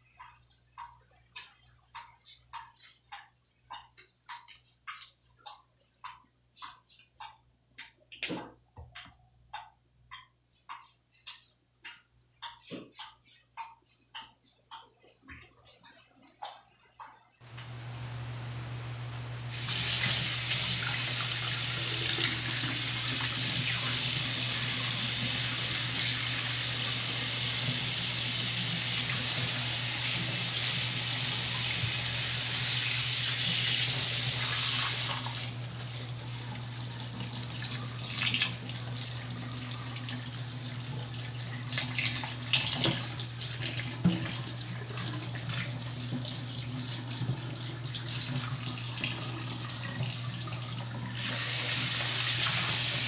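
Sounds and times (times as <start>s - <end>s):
tap water running into sink: 17.5s - 53.0s.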